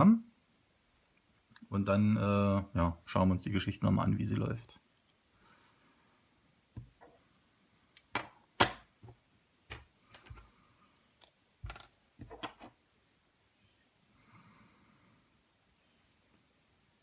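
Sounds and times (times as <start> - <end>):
metal parts clicking on wooden table: 11.2 - 12.8.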